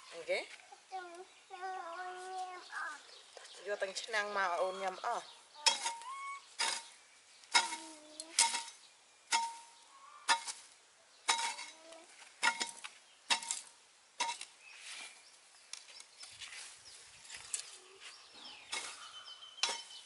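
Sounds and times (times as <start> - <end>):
metal hoe chopping hard ground: 5.7 - 6.0, 6.6 - 10.7, 11.3 - 11.8, 12.4 - 14.5, 18.7 - 20.0.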